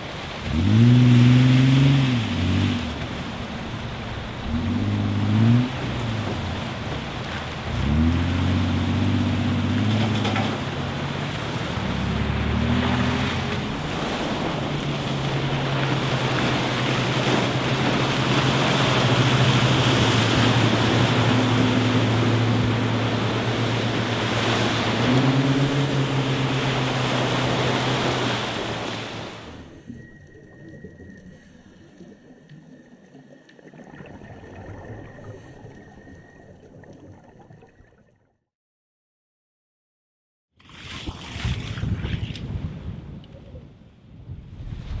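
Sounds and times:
wash of surf and water: 0.0s - 37.8s, 40.6s - 45.0s
outboard motor running: 0.5s - 29.4s.

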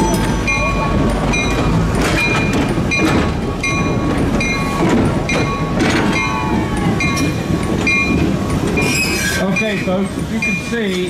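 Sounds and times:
diesel locomotives rumbling: 0.0s - 11.0s
locomotive bell ringing: 0.0s - 11.0s
wheel squeal: 8.8s - 9.5s.

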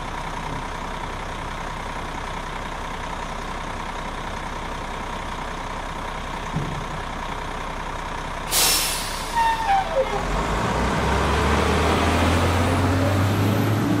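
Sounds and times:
truck engine running: 0.0s - 14.0s
sharp air hiss: 8.5s - 9.5s.

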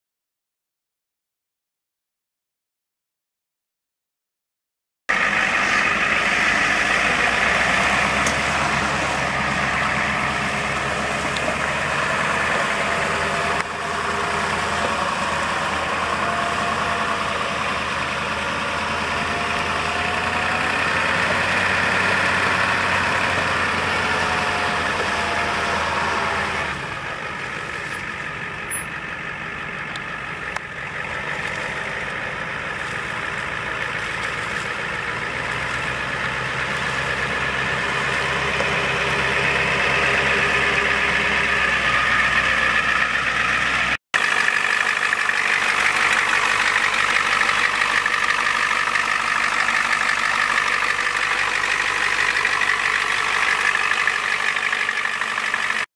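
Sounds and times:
diesel truck engine running: 5.1s - 55.9s.

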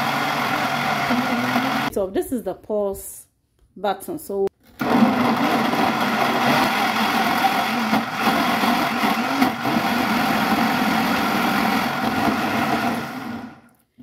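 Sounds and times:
blender motor running: 0.0s - 1.9s, 4.8s - 13.7s.

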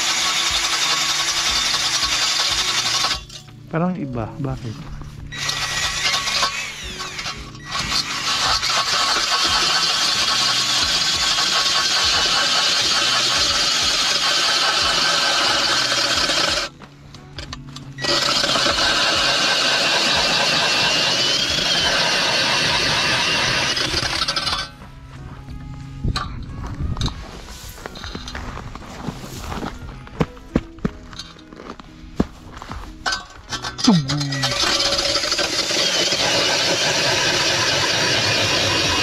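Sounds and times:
cordless drill boring through ice: 0.0s - 3.4s, 5.3s - 16.7s, 18.0s - 24.7s, 33.8s - 39.0s.

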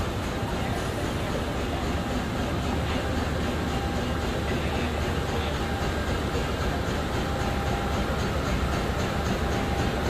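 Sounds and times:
diesel locomotive engine rumbling: 0.0s - 10.0s.

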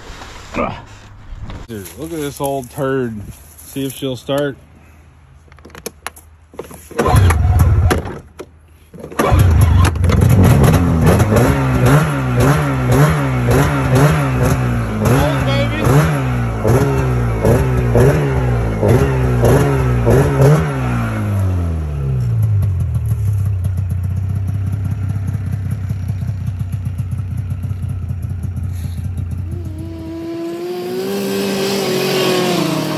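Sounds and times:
snowmobile engine revving and idling: 9.3s - 32.9s.

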